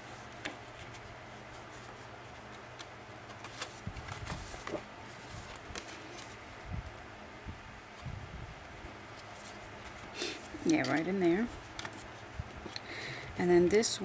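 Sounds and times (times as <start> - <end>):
steady low hum: 0.0 - 14.0
paper rustling and tapping: 1.8 - 6.3.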